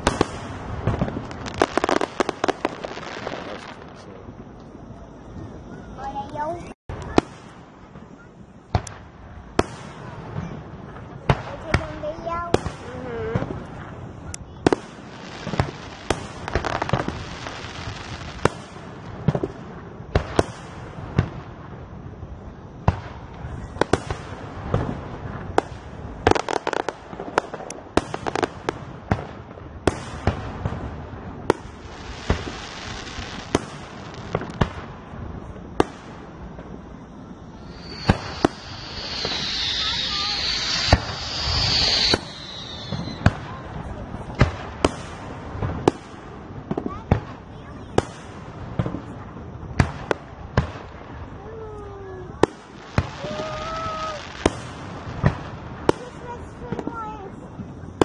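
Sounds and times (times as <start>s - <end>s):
high hiss: 0.0s - 7.6s, 35.8s - 44.0s
fireworks bursting with bangs: 0.0s - 58.0s.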